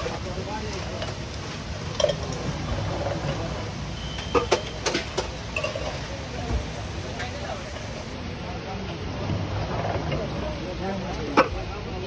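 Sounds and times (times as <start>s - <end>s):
metal tins clinking on steel: 1.9s - 2.6s.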